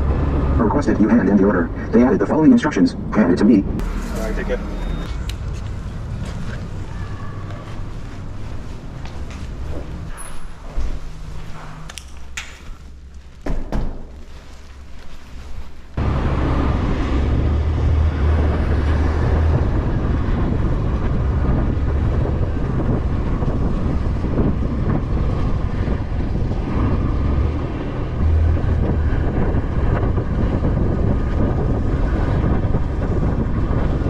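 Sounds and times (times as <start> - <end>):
wind noise on microphone: 16.0 - 34.0.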